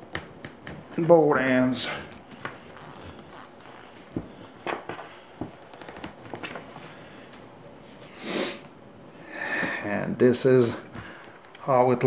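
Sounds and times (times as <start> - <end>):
rope rubbing and knocking: 0.0 - 7.0.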